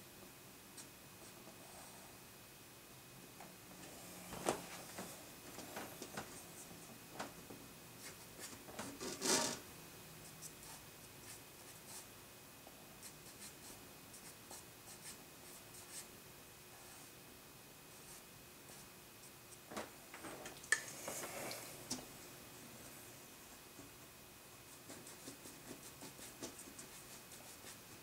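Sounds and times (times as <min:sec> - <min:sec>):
pencil scratching on paper: 0:24.7 - 0:27.9.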